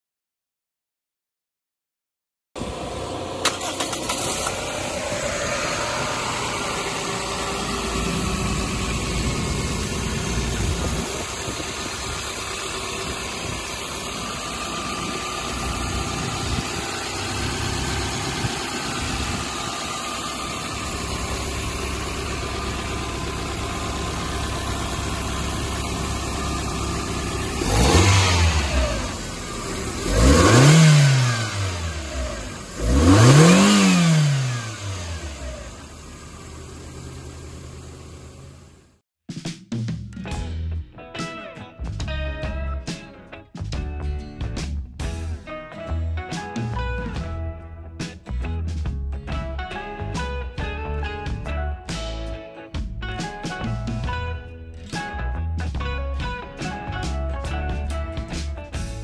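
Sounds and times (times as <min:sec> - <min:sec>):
car engine idling and revving: 0:02.6 - 0:39.0, 0:48.3 - 0:52.3, 0:53.0 - 0:59.0.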